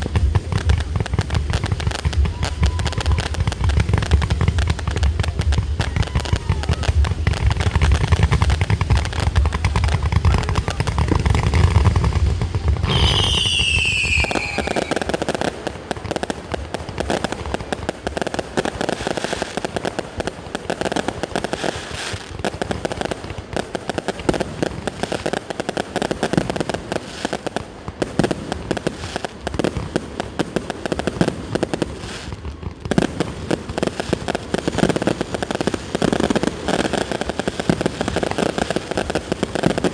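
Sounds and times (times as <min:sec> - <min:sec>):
fireworks booming: 0:00.0 - 0:39.9
fireworks crackling: 0:00.0 - 0:39.9
firework whistle falling: 0:12.8 - 0:15.1.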